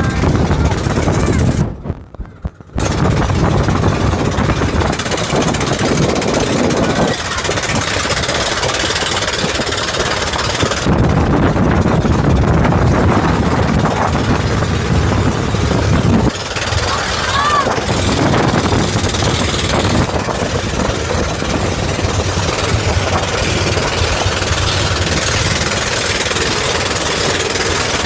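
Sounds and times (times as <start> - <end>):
boat engine running: 0.0 - 28.0
rushing wind: 0.0 - 28.0
rushing water: 13.0 - 28.0.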